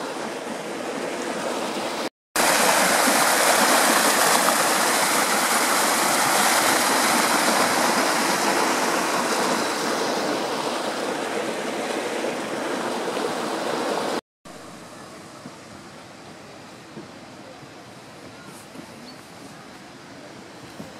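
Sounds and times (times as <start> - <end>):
water rushing down channel: 0.0 - 20.9.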